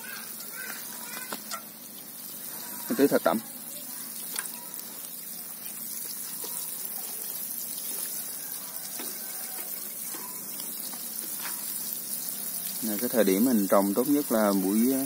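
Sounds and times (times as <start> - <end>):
watering can spraying onto soil: 0.0 - 15.0.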